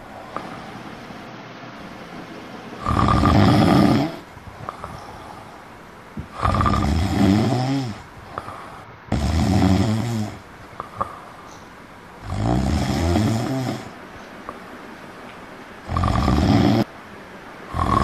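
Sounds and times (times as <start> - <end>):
person snoring: 2.8 - 5.5, 6.3 - 11.2, 12.2 - 14.0, 15.9 - 16.9, 17.7 - 18.0.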